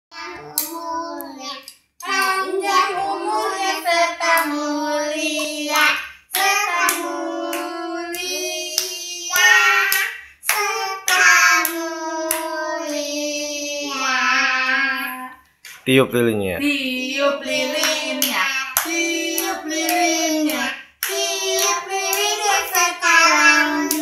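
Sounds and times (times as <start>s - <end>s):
children singing: 0.1s - 15.4s, 16.8s - 24.0s
hands clapping: 5.3s - 12.5s, 17.7s - 24.0s.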